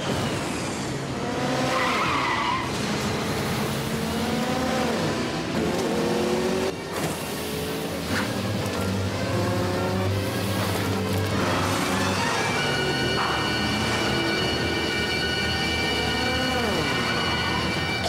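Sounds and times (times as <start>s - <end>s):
tires skidding: 0.1s - 4.9s.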